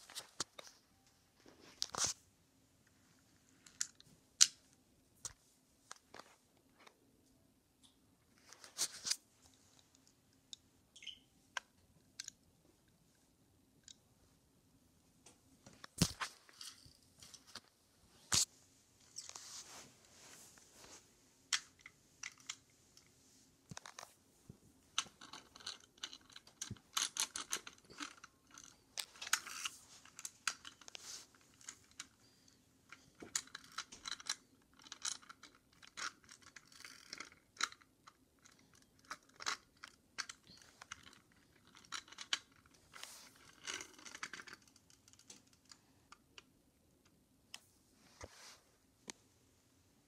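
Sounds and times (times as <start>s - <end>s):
toy cars handled by hand: 3.6s - 4.6s, 15.7s - 24.2s, 24.9s - 47.2s.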